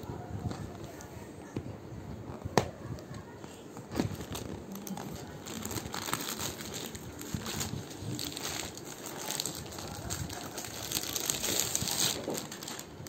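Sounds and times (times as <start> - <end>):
packaging crinkling: 3.8 - 13.0.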